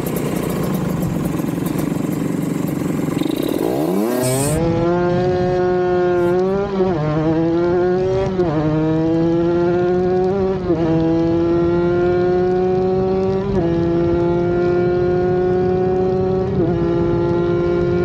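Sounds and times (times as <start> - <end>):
motorcycle engine at full throttle: 0.0 - 18.0.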